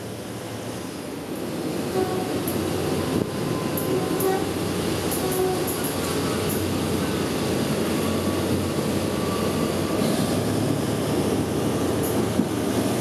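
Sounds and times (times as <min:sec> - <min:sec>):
train wheels rumbling on track: 0:00.0 - 0:13.0.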